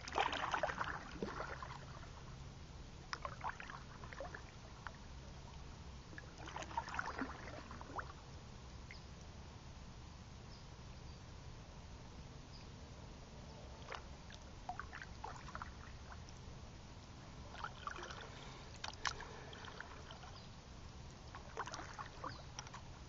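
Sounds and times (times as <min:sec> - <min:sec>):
paddle splashing in water: 0:00.0 - 0:02.2, 0:03.1 - 0:05.0, 0:06.2 - 0:08.2, 0:13.8 - 0:16.4, 0:17.4 - 0:20.4, 0:21.2 - 0:22.9.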